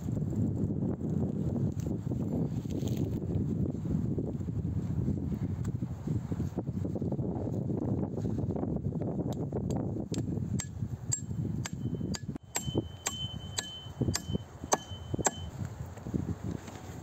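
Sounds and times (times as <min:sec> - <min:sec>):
wind rumble on microphone: 0:00.0 - 0:17.0
faint metallic ring: 0:11.2 - 0:15.6.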